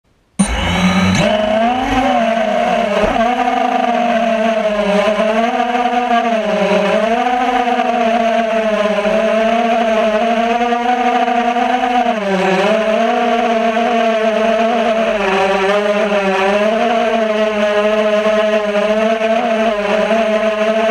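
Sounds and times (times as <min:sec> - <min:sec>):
drone motors and propellers whining: 0:00.4 - 0:20.9.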